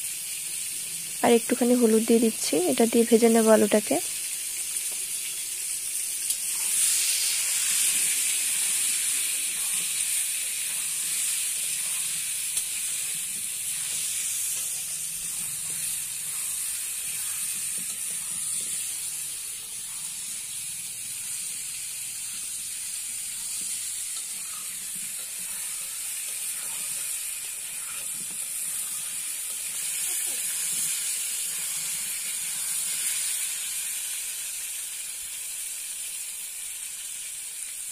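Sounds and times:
potatoes sizzling in hot oil: 0.0 - 37.9
metal spatula scraping: 6.5 - 20.6.

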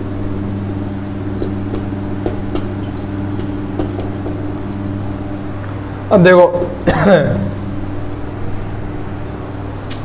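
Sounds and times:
marker squeaking on whiteboard: 0.0 - 4.9
low electrical hum: 0.0 - 10.0.

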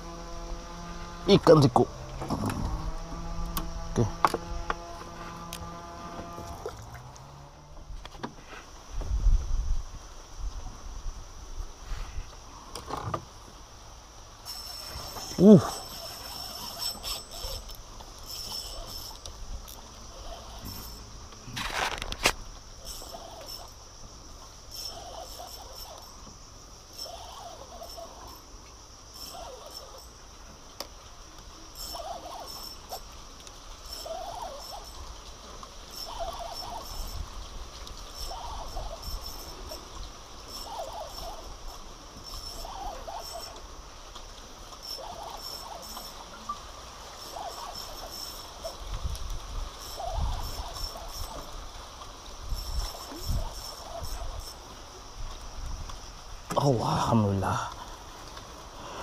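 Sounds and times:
insects shrilling: 13.8 - 59.0
short chirping call: 35.9 - 37.3, 38.1 - 43.6, 44.8 - 48.8, 52.5 - 54.7.

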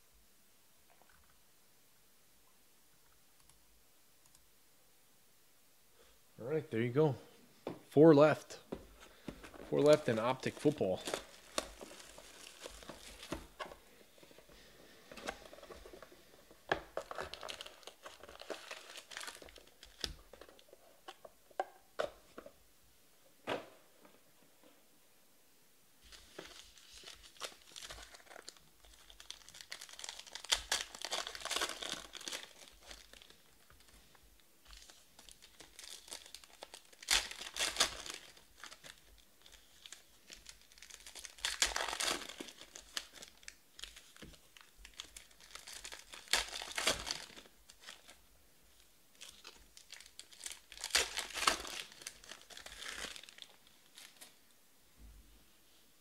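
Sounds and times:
wrappers crinkling and tearing: 9.7 - 20.7, 26.1 - 54.4.

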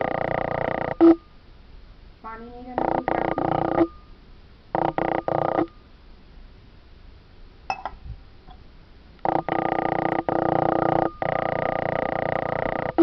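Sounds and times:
electronic beeping tones: 2.8 - 4.1
metal tumbler clinking: 7.7 - 8.0.

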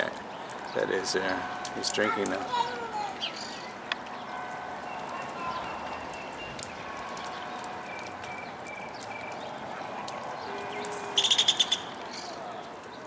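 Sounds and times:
bird chattering call: 10.7 - 12.4.

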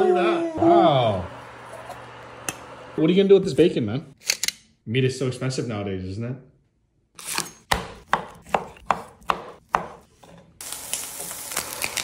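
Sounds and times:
knife chopping on wooden board: 7.7 - 10.2
bacon sizzling in a frying pan: 10.6 - 12.0.

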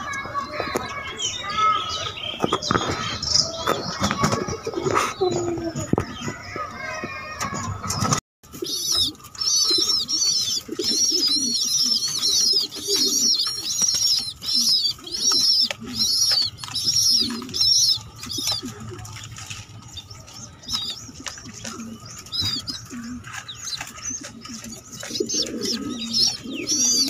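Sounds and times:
low pigeon sounds: 0.0 - 27.0
squab high-pitched peeping: 7.6 - 27.0.

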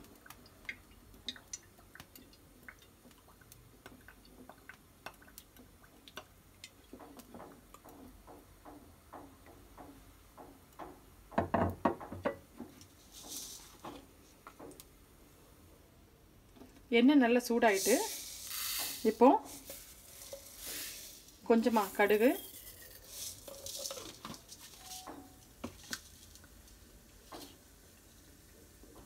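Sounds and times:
oil ticking and crackling in pan: 0.0 - 15.0, 17.6 - 29.0
brief hiss: 17.8 - 21.4.

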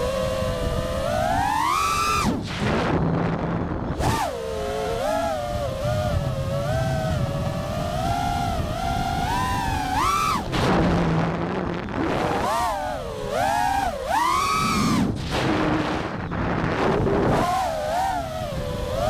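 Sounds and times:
drone motors whining: 0.0 - 19.0
wind noise on microphone: 0.0 - 19.0.

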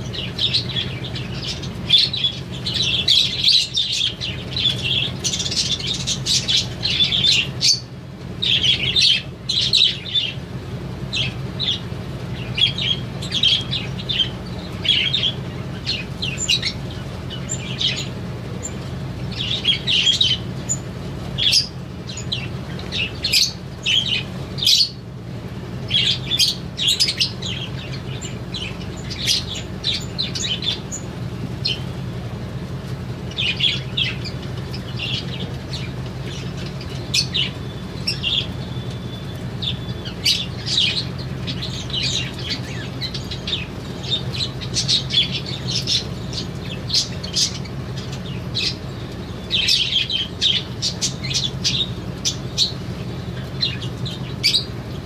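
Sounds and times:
small birds chirping and chattering: 0.0 - 55.0
steady low hum: 0.0 - 55.0.

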